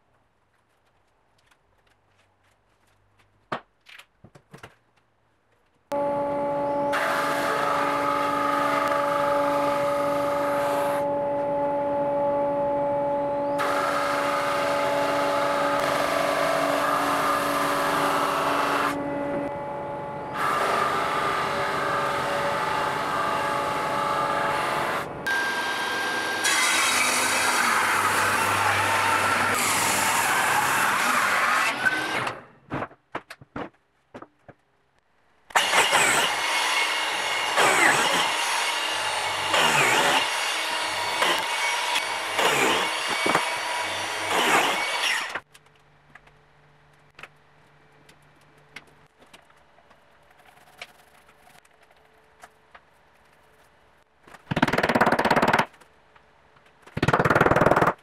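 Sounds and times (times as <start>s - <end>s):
table saw cutting wood: 5.9s - 32.4s, 35.5s - 45.4s.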